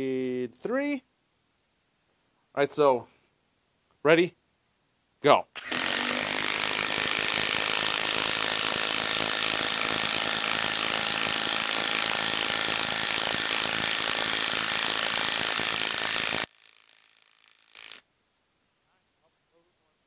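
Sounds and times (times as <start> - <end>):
impact wrench hammering: 5.6 - 18.0.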